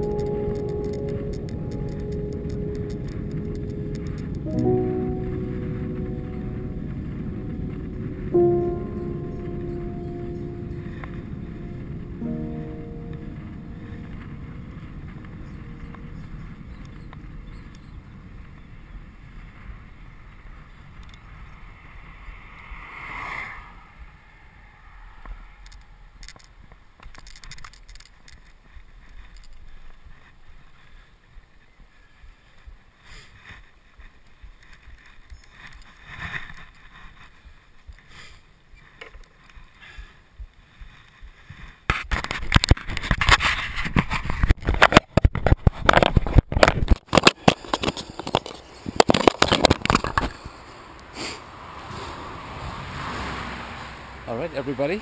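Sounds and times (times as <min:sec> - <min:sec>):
wind rush and road noise: 0:00.0 - 0:55.0
light clicks and rattles: 0:25.6 - 0:30.3
camera handling scraping: 0:41.9 - 0:50.4.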